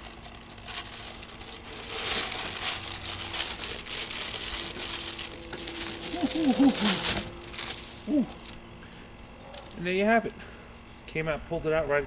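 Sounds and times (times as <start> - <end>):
parchment paper crinkling: 0.0 - 8.6.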